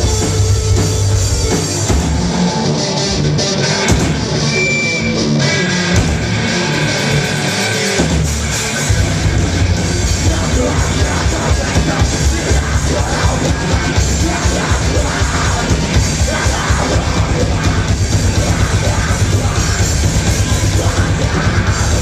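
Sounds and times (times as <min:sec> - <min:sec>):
pounding drums: 0:00.0 - 0:02.8, 0:03.7 - 0:04.6, 0:05.7 - 0:22.0
heavy rock band playing: 0:00.0 - 0:22.0
yelled lead vocal: 0:01.8 - 0:22.0.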